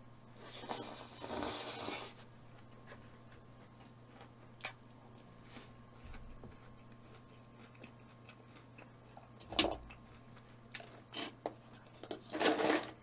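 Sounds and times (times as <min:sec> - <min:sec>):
person slurping noodles: 0:00.4 - 0:02.2
quiet eating: 0:00.4 - 0:12.3.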